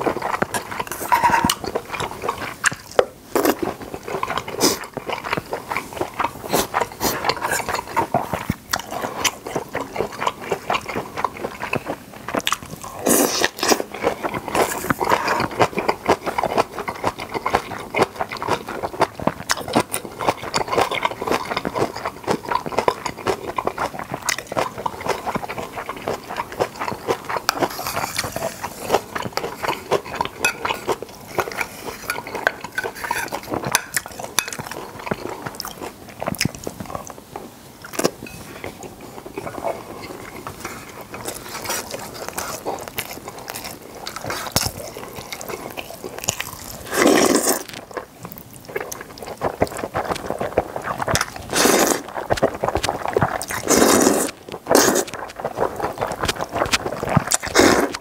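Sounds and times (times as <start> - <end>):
wet chewing with clicks: 0.0 - 58.0.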